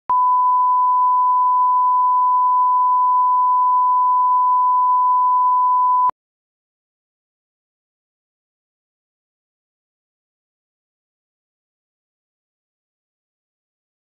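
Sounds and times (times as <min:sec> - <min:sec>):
single-pitch test tone: 0:00.1 - 0:06.1.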